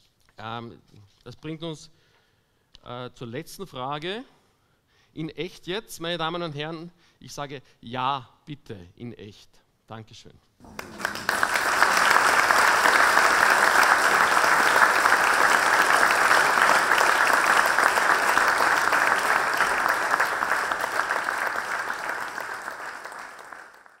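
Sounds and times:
audience applauding: 0:10.6 - 0:24.0.

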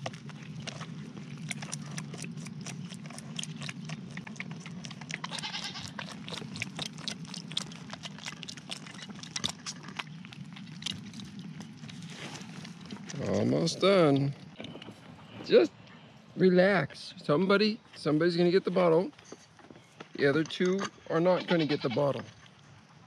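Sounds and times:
goat kid suckling a bottle: 0:00.0 - 0:13.4
faint goat bleat: 0:05.2 - 0:06.0, 0:21.1 - 0:22.2.

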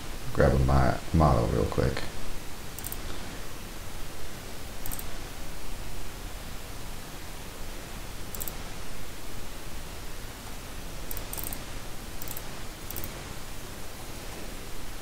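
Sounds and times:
microphone hiss: 0:00.0 - 0:15.0
computer mouse clicks: 0:02.7 - 0:03.2, 0:04.8 - 0:05.2, 0:08.3 - 0:08.7, 0:11.0 - 0:13.2.

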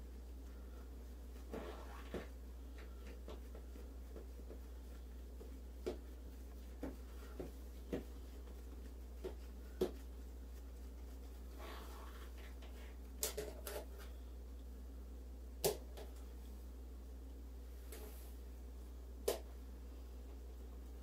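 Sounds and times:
hands rolling dough on steel table: 0:00.0 - 0:14.2
steady low hum: 0:00.0 - 0:21.0.

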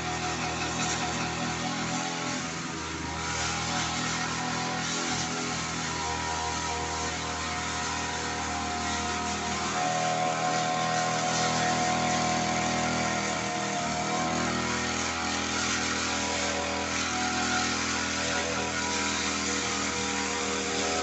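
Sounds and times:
brush cutter engine running: 0:00.0 - 0:21.0.

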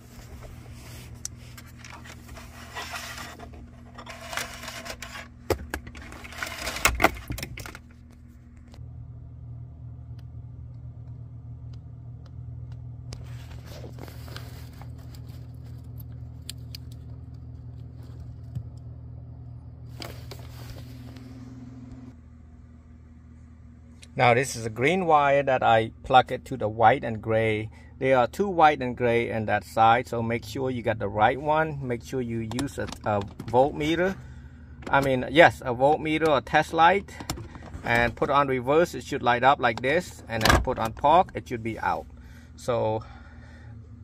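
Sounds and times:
steady low hum: 0:00.0 - 0:44.0
hands handling wiring and plastic trim: 0:00.1 - 0:08.8.

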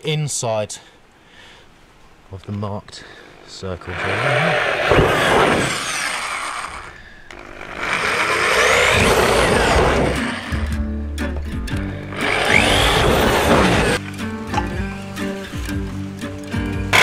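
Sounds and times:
electric drill boring holes: 0:03.4 - 0:10.8, 0:12.1 - 0:14.0
background music with held tones: 0:08.8 - 0:17.0.

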